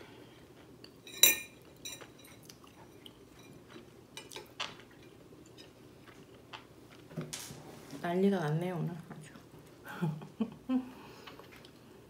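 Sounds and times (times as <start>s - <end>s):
chopsticks clinking on plate: 1.1s - 5.8s.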